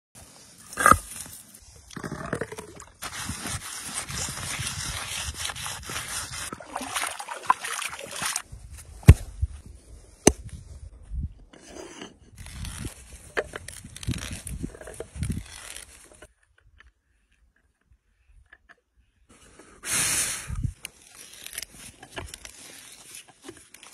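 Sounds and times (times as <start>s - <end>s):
stone and wood scraping: 0.6s - 1.4s, 2.0s - 6.7s
hand auger grinding into wood: 0.6s - 8.4s, 11.6s - 16.3s.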